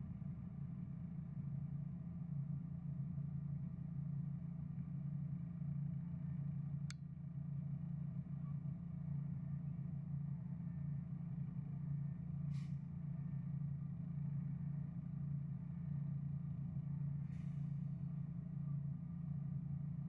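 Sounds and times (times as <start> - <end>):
brief hiss: 12.5 - 12.8.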